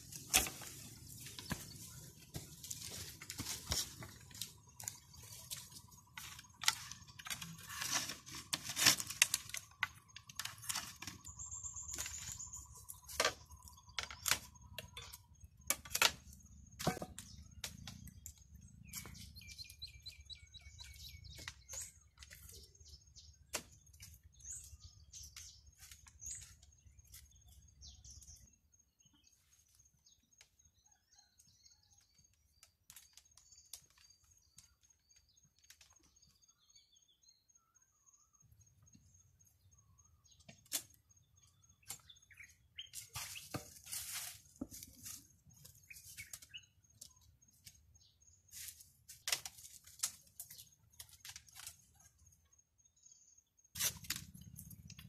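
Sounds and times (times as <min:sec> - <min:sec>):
bamboo slats clicking and tapping: 0:00.0 - 0:12.3, 0:12.9 - 0:19.2, 0:23.5 - 0:24.2, 0:40.4 - 0:41.0, 0:48.5 - 0:51.9, 0:53.8 - 0:55.0
wildlife chirping: 0:00.0 - 0:43.8, 0:44.8 - 0:49.4, 0:50.1 - 0:55.0.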